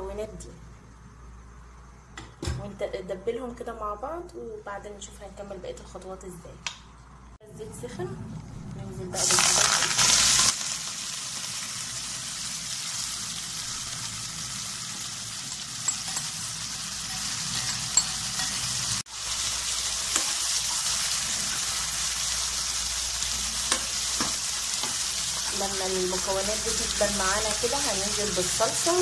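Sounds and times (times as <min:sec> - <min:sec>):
vegetables sizzling in hot oil: 0:09.1 - 0:29.0.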